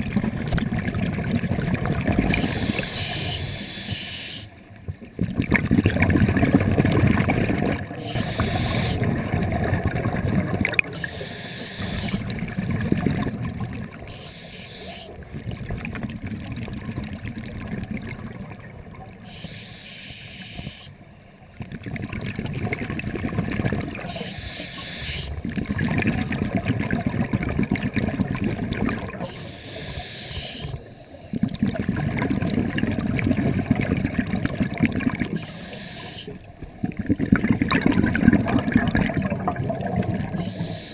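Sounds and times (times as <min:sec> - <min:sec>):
gurgling exhaled bubbles: 0:00.0 - 0:03.8, 0:04.9 - 0:19.4, 0:21.6 - 0:40.9
hissing regulator inhalation: 0:02.3 - 0:04.5, 0:08.0 - 0:09.1, 0:10.9 - 0:12.3, 0:14.1 - 0:15.2, 0:19.2 - 0:20.9, 0:24.1 - 0:25.4, 0:29.3 - 0:30.9, 0:35.3 - 0:36.4, 0:40.2 - 0:40.9.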